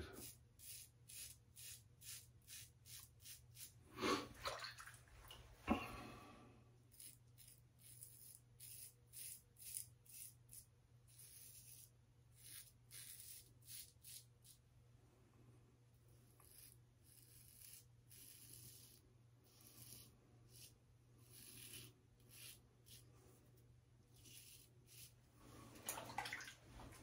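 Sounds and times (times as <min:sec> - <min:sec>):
razor scraping stubble: 0:06.9 - 0:14.6, 0:16.2 - 0:25.2.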